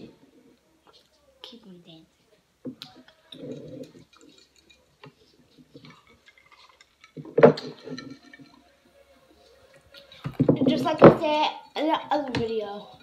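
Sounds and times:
spoons and glasses tapping: 2.7 - 8.8.

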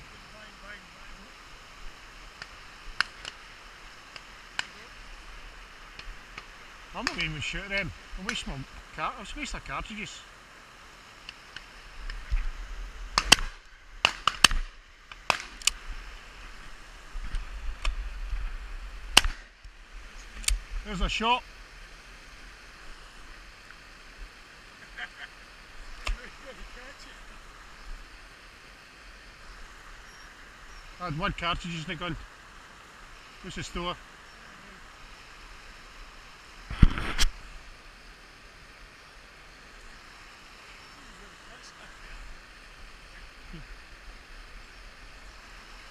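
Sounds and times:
shotguns firing: 13.2 - 14.7.

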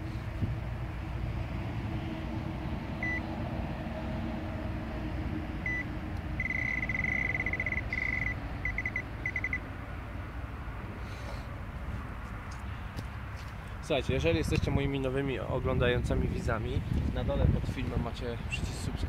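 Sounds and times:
electronic bite alarm beeping: 3.0 - 3.2, 5.7 - 9.6.

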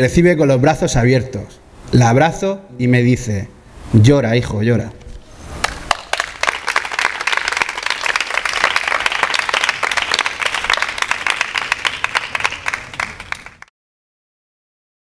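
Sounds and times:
audience applauding: 5.6 - 13.7.

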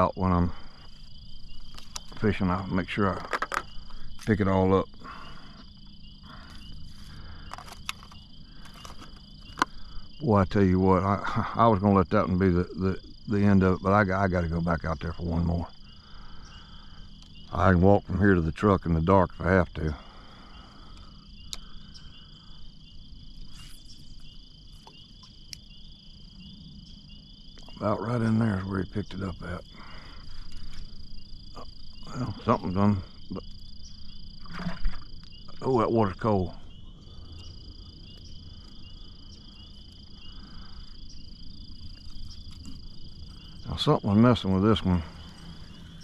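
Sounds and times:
crickets and insects trilling: 0.0 - 46.0
pulsing frog chirps: 0.0 - 46.0
faint clicks: 20.9 - 21.7.

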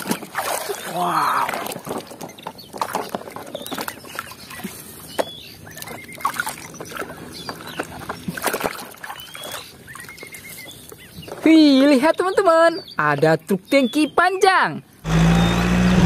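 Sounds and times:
water splashing and sloshing: 0.0 - 11.6.

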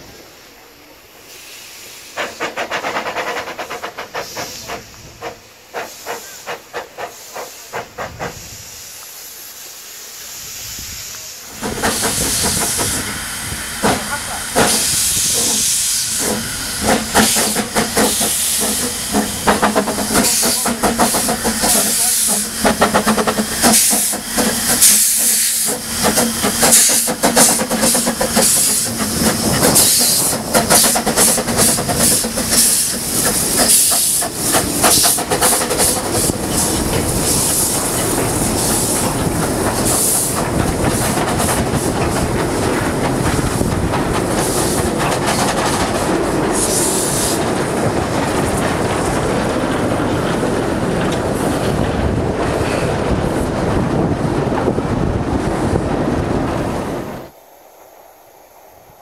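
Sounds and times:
steam locomotive hissing steam: 0.0 - 54.5
short steam puffs: 1.2 - 43.7.

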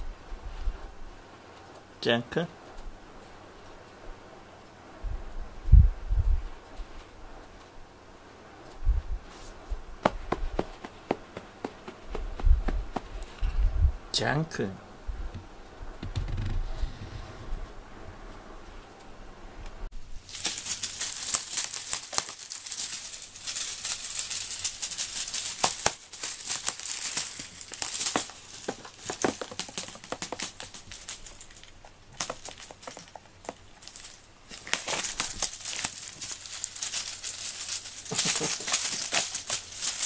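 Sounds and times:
toy crinkling rattle: 20.3 - 40.0.

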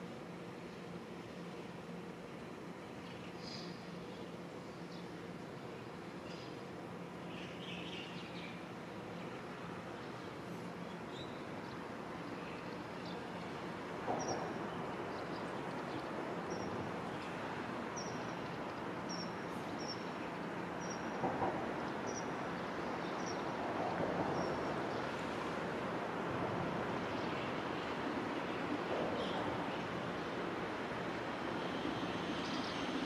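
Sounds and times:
train rumbling: 13.2 - 33.0.

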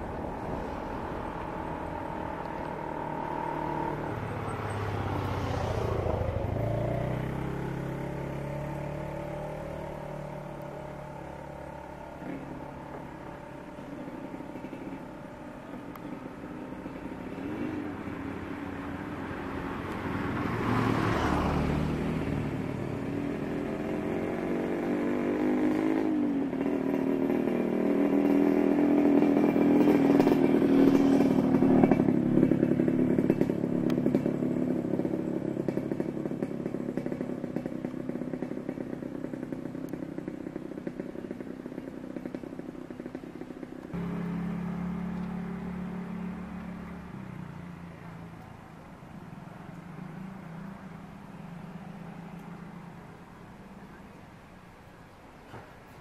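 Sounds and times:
turboprop engine drone: 0.0 - 6.6, 28.2 - 47.0.

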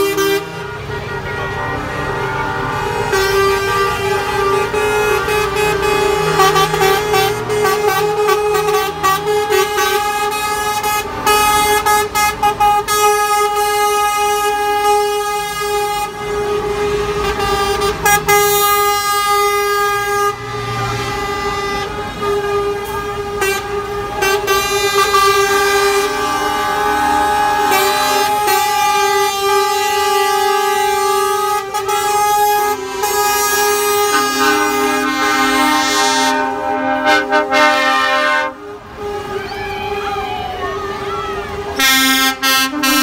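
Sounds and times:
diesel truck engines running: 0.0 - 43.0
truck air horns blaring: 0.0 - 43.0.

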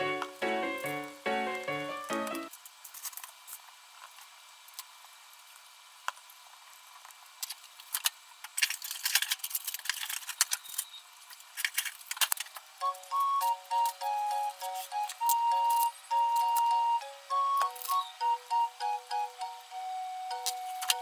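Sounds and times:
crisp clicks: 7.0 - 16.8, 17.5 - 18.4, 20.3 - 21.0.

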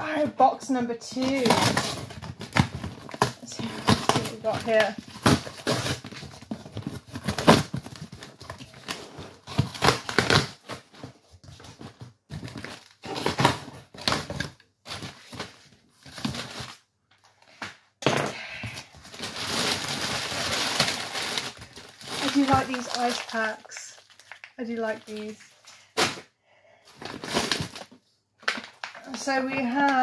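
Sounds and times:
cardboard scraping and crushing: 1.2 - 16.8, 19.0 - 24.2, 27.0 - 28.0
plastic packaging crinkling: 1.2 - 16.8, 19.0 - 26.0, 27.0 - 30.0.

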